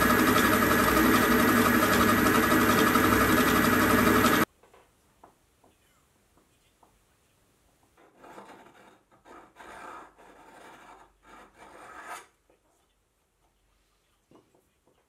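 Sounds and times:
hand file rasping on metal: 8.0s - 12.3s.

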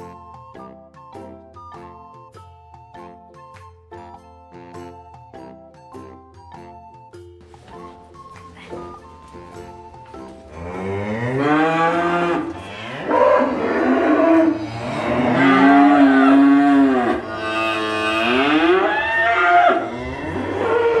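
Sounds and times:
cow mooing: 10.5s - 21.0s.

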